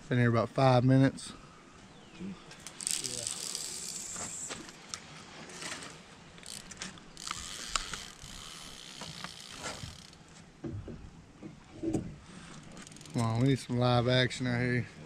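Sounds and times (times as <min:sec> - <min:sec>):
rod and reel clicks: 0:02.5 - 0:10.2, 0:12.5 - 0:13.6
fishing reel whirring: 0:02.6 - 0:04.5, 0:05.5 - 0:10.2, 0:12.5 - 0:13.5.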